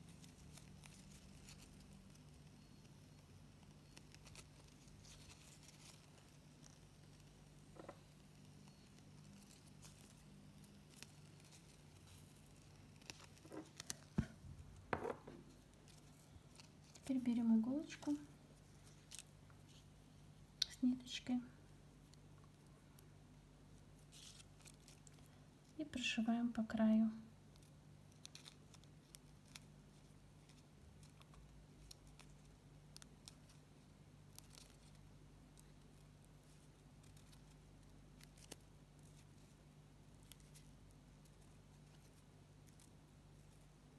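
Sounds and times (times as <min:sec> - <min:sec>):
satin ribbon rustling: 0:00.0 - 0:20.7, 0:21.7 - 0:26.6, 0:27.3 - 0:43.9
low steady hum: 0:00.0 - 0:43.9
needle and thread stitching ribbon: 0:15.0 - 0:19.9.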